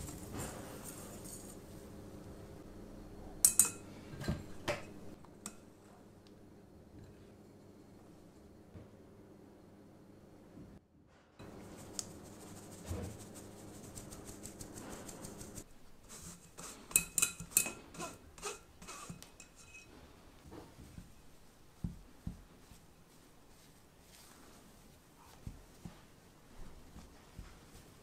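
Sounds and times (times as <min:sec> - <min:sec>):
metal sieve clinking on glass bowl: 0:03.4 - 0:03.8
spatula scraping powder through sieve: 0:11.4 - 0:20.0.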